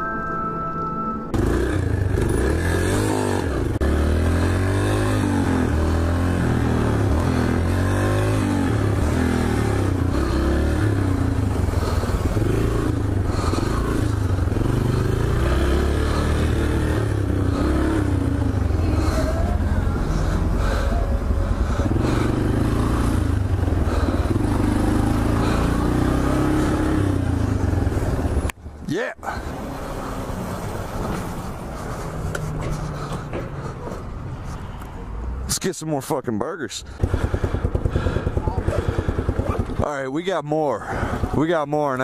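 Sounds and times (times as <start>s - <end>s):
dirt bike engine revving: 1.3s - 28.4s, 36.9s - 40.0s.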